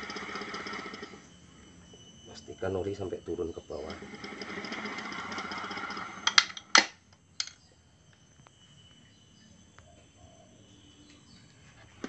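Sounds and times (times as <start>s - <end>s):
sharp knocks of engine parts: 6.2s - 7.6s
small ticks: 8.1s - 9.0s.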